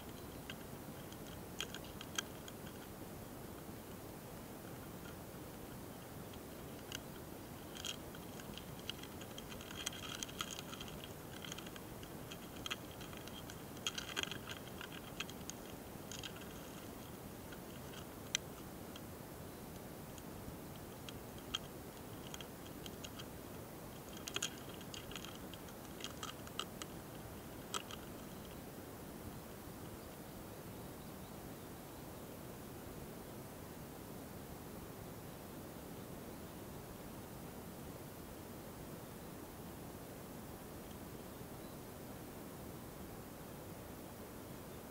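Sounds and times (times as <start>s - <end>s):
beetle clicks and scratches: 0.0s - 28.6s
steady hiss: 0.0s - 44.9s.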